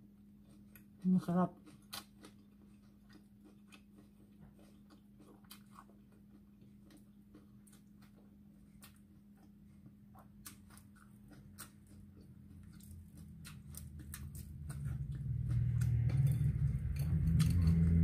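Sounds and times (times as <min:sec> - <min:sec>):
faint steady hum: 0:00.0 - 0:18.0
low rumble: 0:13.4 - 0:18.0.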